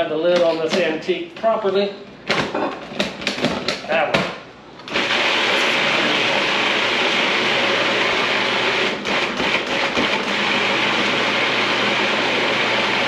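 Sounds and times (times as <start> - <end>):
food processor motor running: 4.9 - 13.0.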